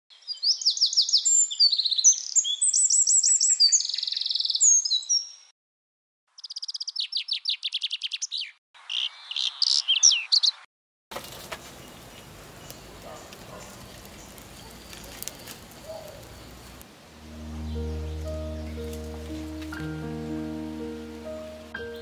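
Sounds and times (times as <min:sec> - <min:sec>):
songbirds trilling and chirping: 0:00.1 - 0:05.5, 0:06.3 - 0:22.0
steady hiss with small ticks: 0:11.2 - 0:17.2.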